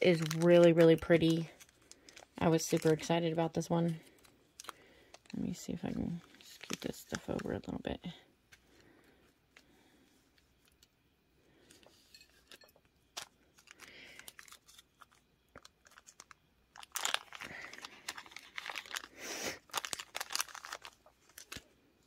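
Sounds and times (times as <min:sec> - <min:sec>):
plastic bags crinkling: 0:00.0 - 0:08.1, 0:12.5 - 0:22.0.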